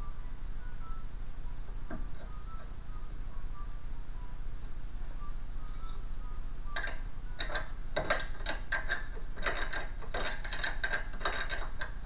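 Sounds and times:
ratchet clicking: 0:06.8 - 0:12.0.

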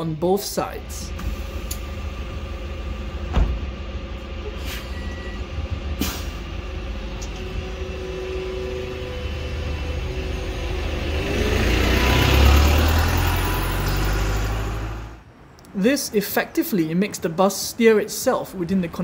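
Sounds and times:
bus engine low hum: 0:00.0 - 0:19.0
air system clicks: 0:01.2 - 0:01.9
short air hisses: 0:06.0 - 0:06.4.

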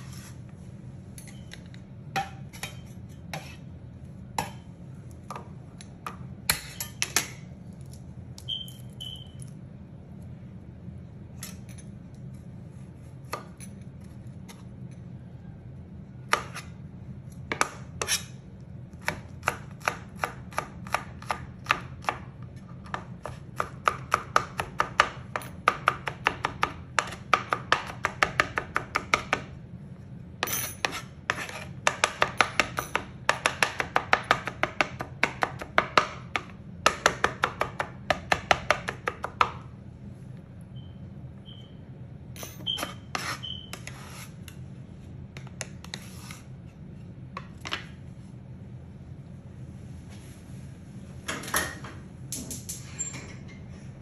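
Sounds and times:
steady low hum: 0:00.0 - 0:54.0
knife chopping on plastic board: 0:17.5 - 0:18.2, 0:19.0 - 0:29.5, 0:30.8 - 0:39.6.

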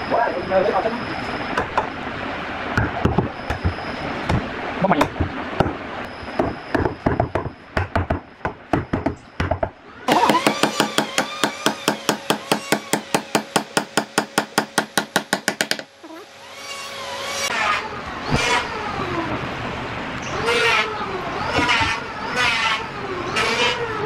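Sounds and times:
steady hum: 0:00.0 - 0:24.0
hammer knocking on wood: 0:06.4 - 0:15.9.

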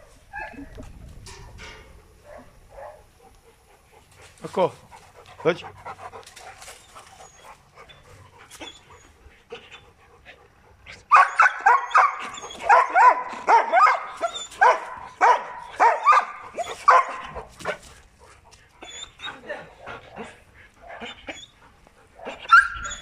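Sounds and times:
dog barking: 0:02.3 - 0:03.0, 0:11.1 - 0:17.4.

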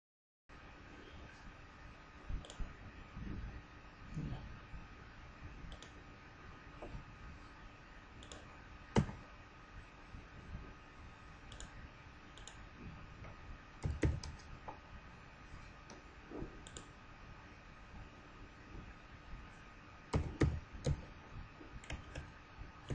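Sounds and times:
keyboard keystrokes: 0:13.8 - 0:14.5.

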